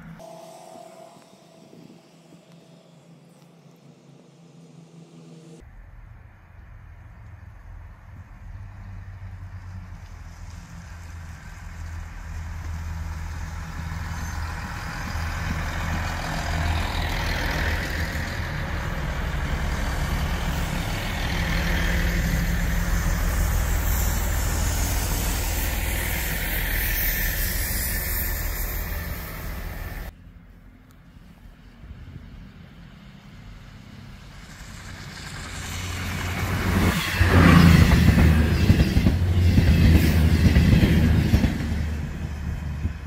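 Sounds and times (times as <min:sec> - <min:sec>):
diesel train engine hum: 0:00.0 - 0:43.0
train wheels on rails: 0:08.9 - 0:30.2, 0:33.4 - 0:43.0.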